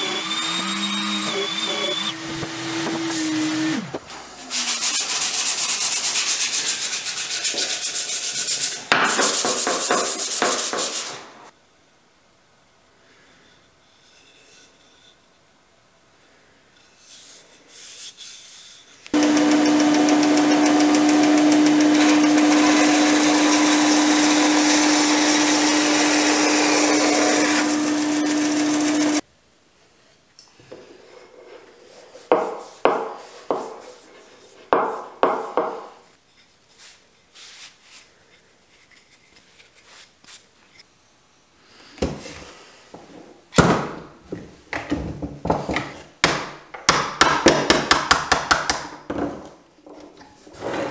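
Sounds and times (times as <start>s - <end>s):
bandsaw cutting wood: 0.0s - 7.4s, 19.2s - 29.2s
scraping strokes on wood: 0.0s - 11.3s, 31.1s - 35.9s.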